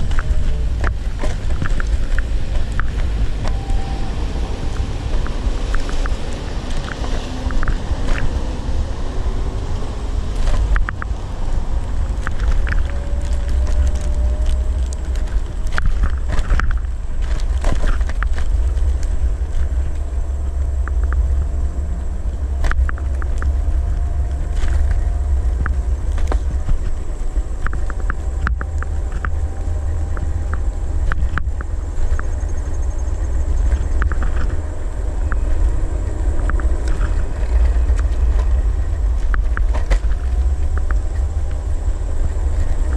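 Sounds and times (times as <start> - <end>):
scooter clicks and rattles: 0.0 - 3.7, 10.3 - 42.9
electric scooter motor whine: 0.0 - 42.9
wind rumbling on microphone: 0.0 - 42.9.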